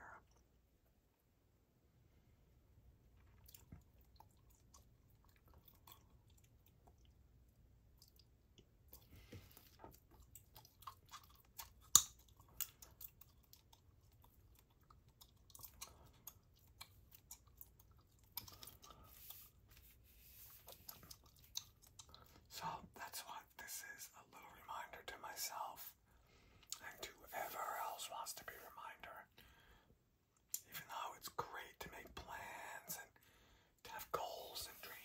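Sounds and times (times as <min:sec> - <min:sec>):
gum chewing clicks and smacks: 0:03.2 - 0:19.9, 0:20.5 - 0:23.2, 0:26.5 - 0:27.1, 0:30.3 - 0:30.8.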